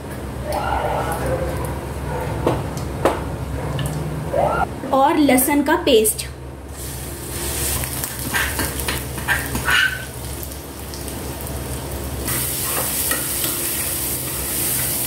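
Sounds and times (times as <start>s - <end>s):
sizzling in hot ghee: 6.7s - 15.0s.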